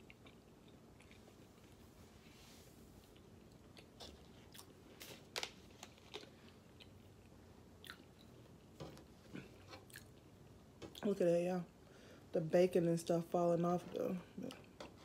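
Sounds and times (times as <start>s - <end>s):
faint chewing: 0.0s - 2.0s, 3.0s - 11.1s.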